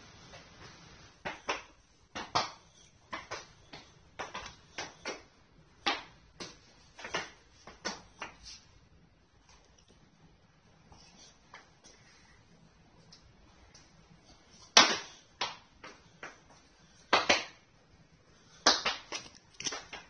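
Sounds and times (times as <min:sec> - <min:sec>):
child's shoes stomping on tile floor: 0:01.2 - 0:05.2, 0:05.8 - 0:08.4, 0:18.7 - 0:20.0.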